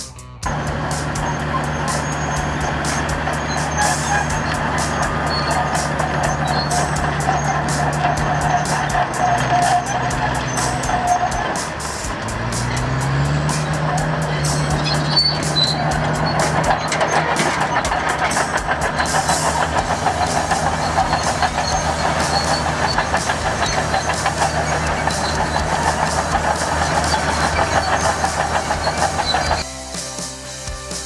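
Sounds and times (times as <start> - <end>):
heavy diesel engine throbbing: 0.0 - 30.9.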